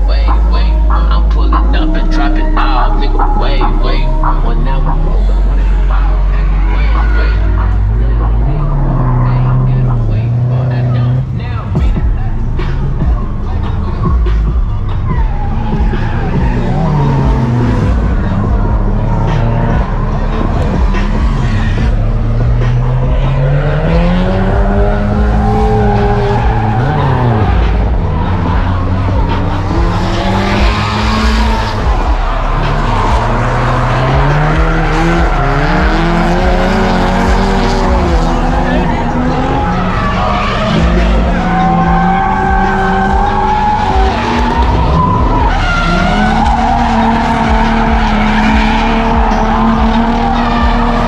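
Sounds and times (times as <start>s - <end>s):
car engine revving: 0.0s - 51.0s
tyres squealing: 12.4s - 51.0s.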